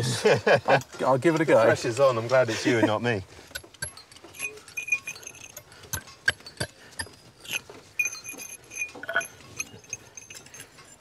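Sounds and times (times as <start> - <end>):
hammer striking steel chisel: 3.5 - 11.0.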